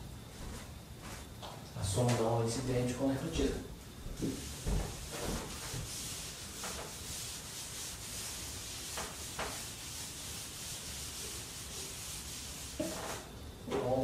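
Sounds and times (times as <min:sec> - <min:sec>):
eraser rubbing on chalkboard: 0:04.4 - 0:13.3.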